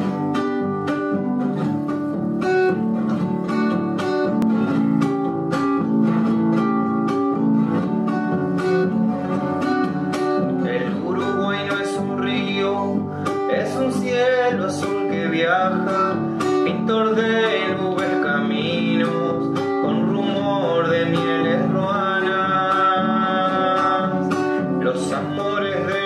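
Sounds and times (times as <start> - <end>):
acoustic guitar plucking and strumming: 0.0 - 26.0
person singing: 8.4 - 26.0.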